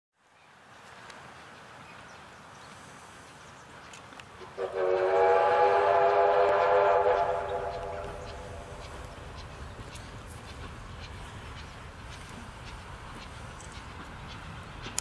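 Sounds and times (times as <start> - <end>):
faint background noise: 0.2 - 15.0
locomotive steam whistle: 4.6 - 8.6.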